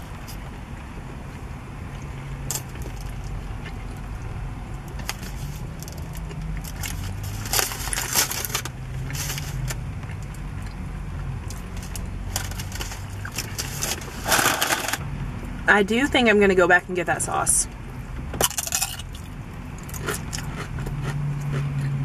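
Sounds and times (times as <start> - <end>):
aluminium foil crinkling: 5.0 - 9.8.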